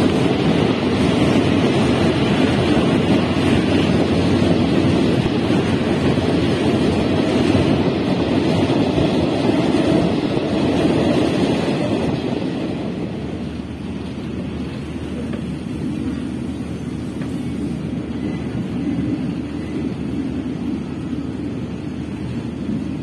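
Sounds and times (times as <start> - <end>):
passenger train rumbling: 0.0 - 23.0
rushing wind: 0.0 - 23.0
wind buffeting microphone: 0.0 - 23.0.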